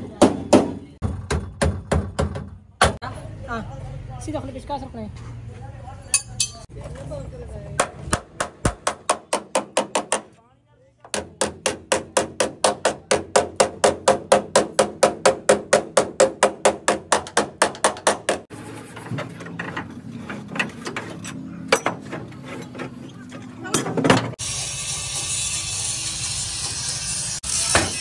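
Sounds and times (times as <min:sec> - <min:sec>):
hammer strikes on metal body: 0:07.8 - 0:10.3, 0:11.1 - 0:18.4.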